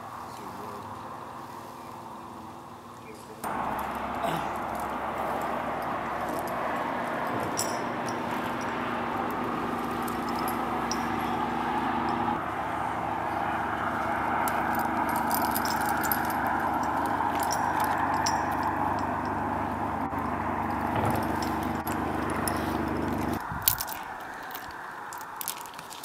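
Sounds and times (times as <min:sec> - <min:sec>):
metallic clinking of climbing gear: 0:03.4 - 0:12.4, 0:14.0 - 0:19.5, 0:20.1 - 0:26.0
motorcycle engine noise: 0:03.4 - 0:26.0.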